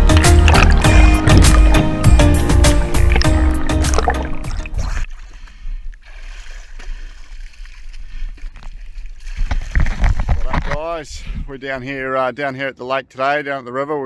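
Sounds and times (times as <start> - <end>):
background music with a beat: 0.0 - 4.7
water trickling and dripping: 0.0 - 5.4.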